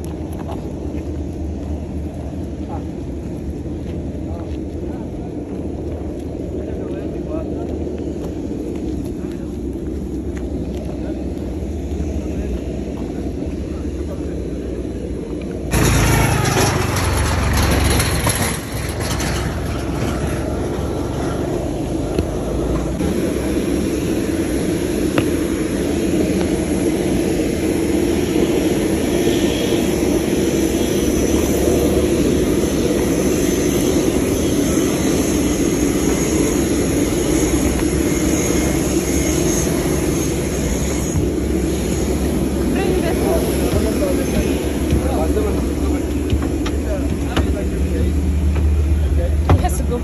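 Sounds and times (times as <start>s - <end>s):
aircraft turbine noise: 0.0s - 50.0s
tractor engine passing: 15.7s - 24.4s
faint high whine: 22.0s - 46.1s.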